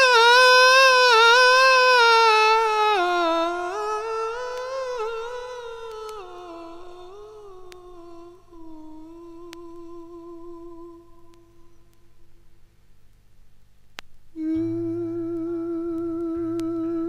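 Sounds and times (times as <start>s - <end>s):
person vocalising wordless melody: 0.0s - 12.1s, 14.4s - 17.0s
faint clicks: 4.3s - 12.1s, 13.1s - 14.6s, 15.2s - 17.0s.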